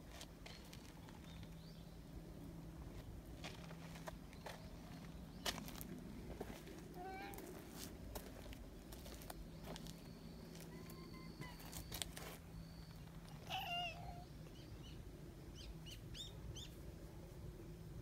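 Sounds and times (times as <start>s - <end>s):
cat meowing: 7.0s - 7.4s, 13.4s - 14.3s.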